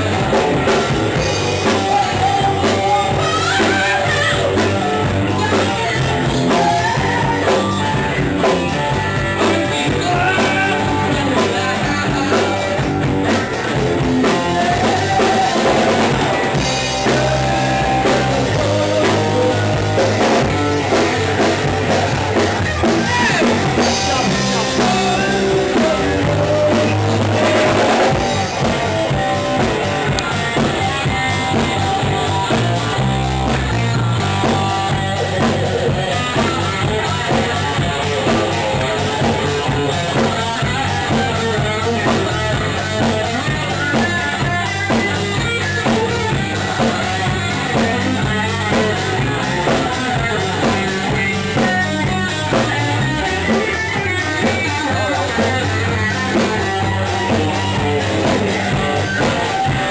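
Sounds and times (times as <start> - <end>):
rock band playing live: 0.0 - 59.9.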